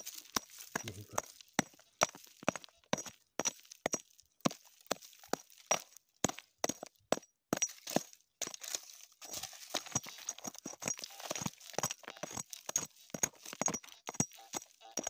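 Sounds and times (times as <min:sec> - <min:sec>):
gravel scraping: 0:00.0 - 0:02.8, 0:07.7 - 0:15.0
metal tool striking stone: 0:00.0 - 0:04.6, 0:05.2 - 0:15.0.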